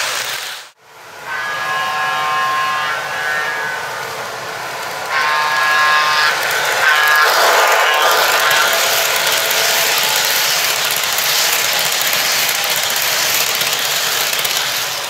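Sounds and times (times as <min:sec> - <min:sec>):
steady electric whine: 0:01.3 - 0:15.0
model train wheels clattering: 0:03.0 - 0:15.0.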